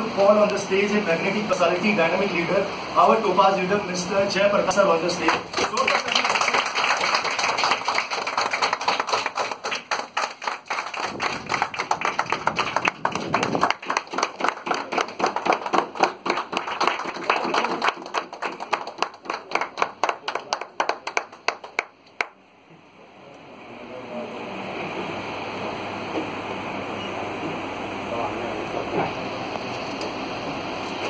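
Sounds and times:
audience applauding: 5.2 - 22.4.

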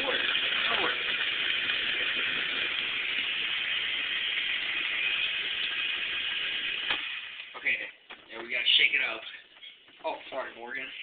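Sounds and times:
blender running: 0.0 - 7.6.

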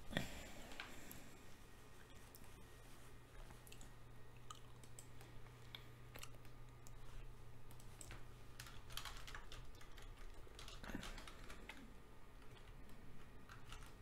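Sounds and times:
steady low hum: 0.0 - 14.0
typing on computer keyboard: 7.7 - 14.0.

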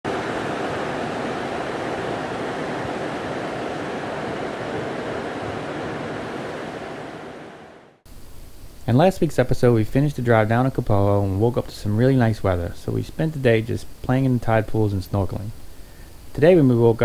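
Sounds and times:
rain: 0.1 - 7.9
surf: 0.1 - 7.9
wind: 0.1 - 9.2.

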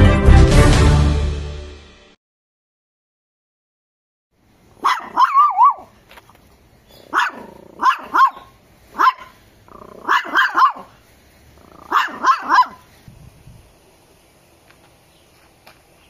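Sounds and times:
small dog barking: 4.8 - 5.9, 7.0 - 11.0, 11.6 - 12.9.

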